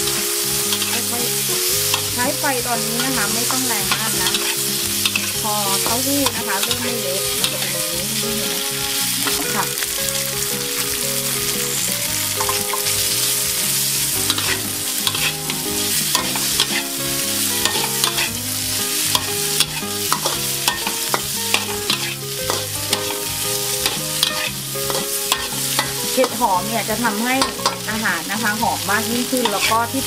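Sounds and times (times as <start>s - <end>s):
metal spatula scraping wok: 0.0s - 10.0s, 10.8s - 30.0s
food sizzling in hot oil: 0.0s - 30.0s.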